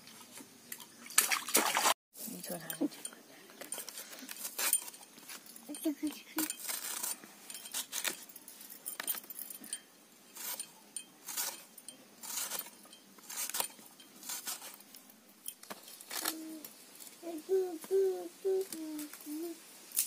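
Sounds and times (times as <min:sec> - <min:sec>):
metal bangles clinking: 0:02.5 - 0:16.1
blade scraping potato: 0:06.4 - 0:08.2, 0:10.3 - 0:14.9.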